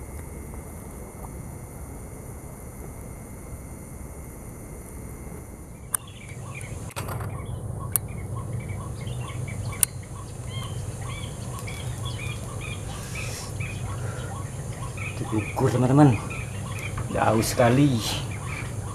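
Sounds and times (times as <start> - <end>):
bird chirping: 5.8 - 18.9.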